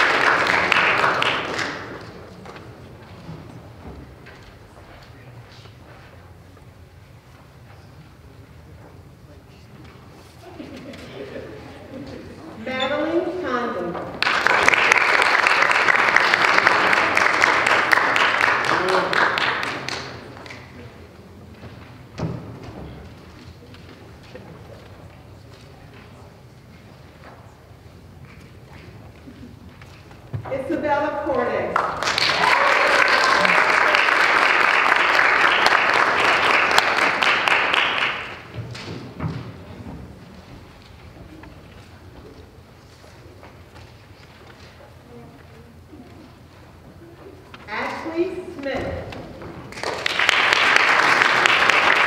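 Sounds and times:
audience applauding: 0.0 - 2.6, 14.1 - 20.7, 31.8 - 38.8, 49.6 - 52.0.

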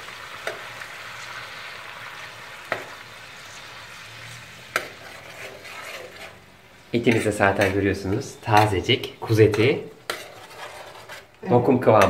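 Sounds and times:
fat sizzling in a pan: 0.0 - 11.4
metal spoon stirring: 4.3 - 11.4.

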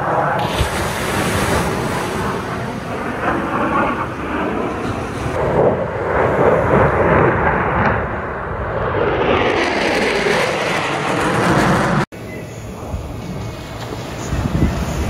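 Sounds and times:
jets passing overhead: 0.0 - 15.0.

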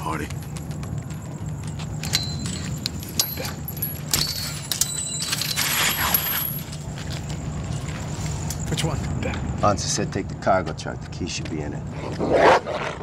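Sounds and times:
metal chain rattling and clinking: 0.0 - 9.4.

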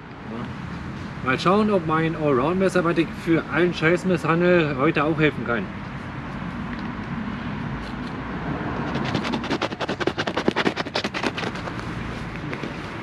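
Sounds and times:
utility knife cutting felt: 8.9 - 11.8.

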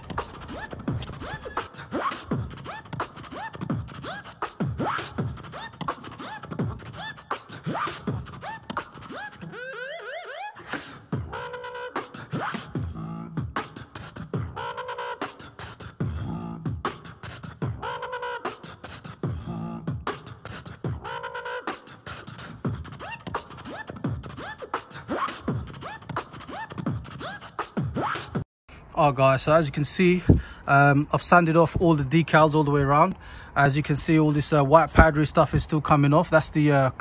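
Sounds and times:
vocal beatbox: 0.0 - 9.5, 10.6 - 29.0.

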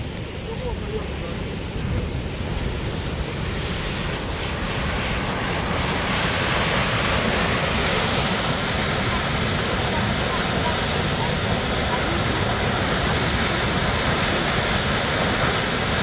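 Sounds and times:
wind rumbling on microphone: 0.0 - 16.0
waterfall rushing: 3.8 - 16.0.

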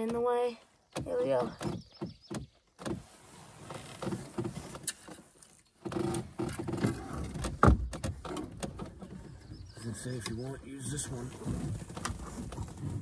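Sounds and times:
clothing and gear rustling: 2.9 - 7.4, 11.0 - 13.0.

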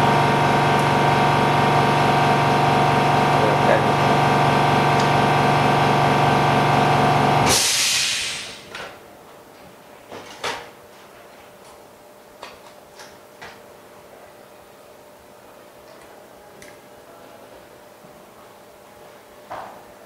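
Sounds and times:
pump humming: 0.0 - 8.6
hiss of released air: 7.4 - 8.7.

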